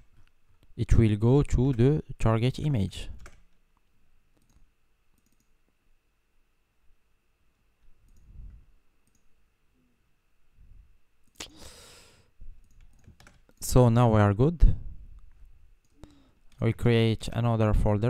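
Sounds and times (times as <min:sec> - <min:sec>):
keyboard keystrokes: 0:03.2 - 0:03.4, 0:12.6 - 0:13.6
computer mouse clicks: 0:03.2 - 0:03.5, 0:04.4 - 0:05.6, 0:08.1 - 0:08.3, 0:09.0 - 0:09.3, 0:12.6 - 0:13.6.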